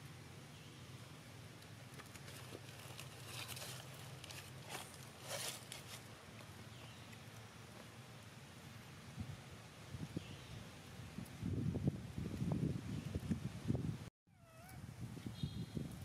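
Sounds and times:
brief rustling scrapes: 2.8s - 6.1s.

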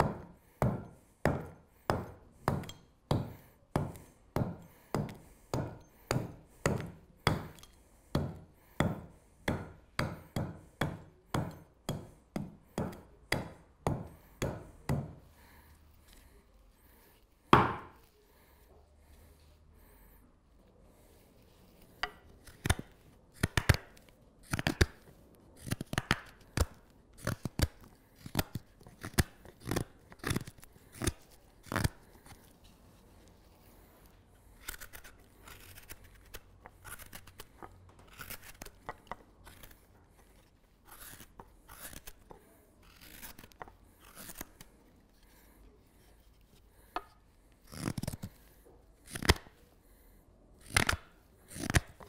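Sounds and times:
knife slicing wood: 0.0s - 15.2s, 21.8s - 32.6s, 34.6s - 45.5s, 46.8s - 48.4s, 49.0s - 49.6s, 50.6s - 52.0s
knife shaving wood: 0.1s - 17.3s, 20.9s - 50.0s, 50.6s - 52.0s.

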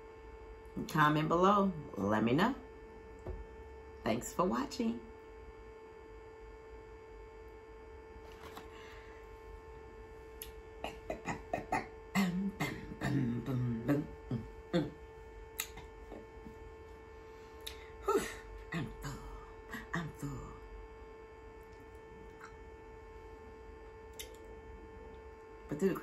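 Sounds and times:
steady hum: 0.0s - 26.0s.

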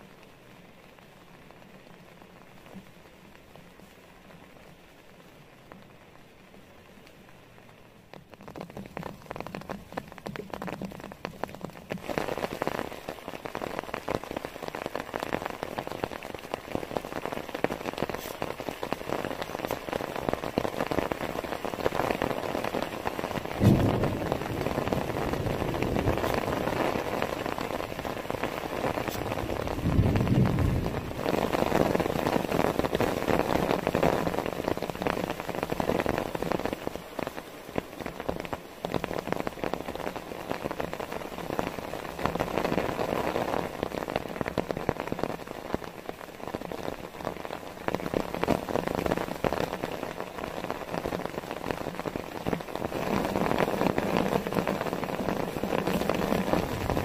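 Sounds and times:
heavy rain pouring: 0.0s - 57.0s
low rumbles: 23.5s - 27.2s, 29.1s - 31.3s.

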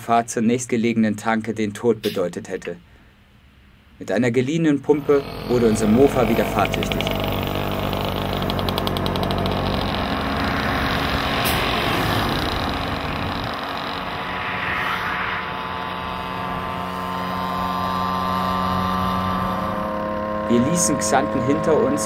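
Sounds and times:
car passing: 4.9s - 22.0s
moped engine running: 5.0s - 14.4s, 15.5s - 22.0s.

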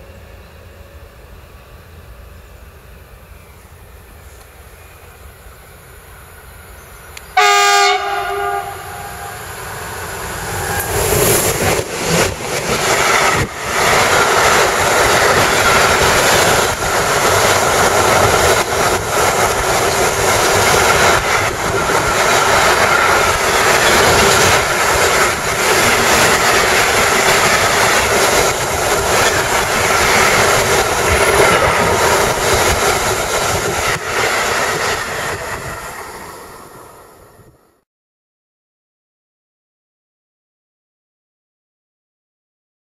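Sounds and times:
freight train rumbling and rattling: 0.0s - 37.6s
train horn blast: 7.4s - 9.5s
wheels clacking over rail joints: 10.5s - 35.8s.

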